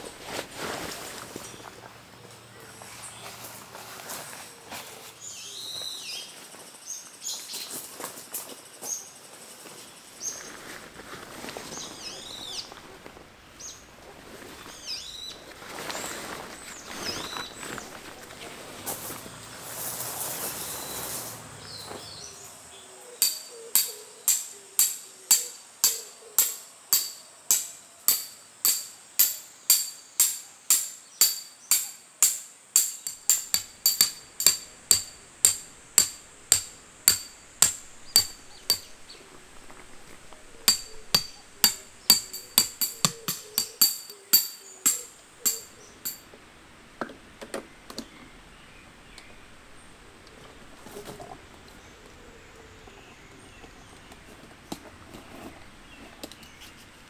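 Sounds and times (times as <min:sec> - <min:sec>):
hammer striking metal: 0:23.2 - 0:39.0, 0:40.7 - 0:46.3.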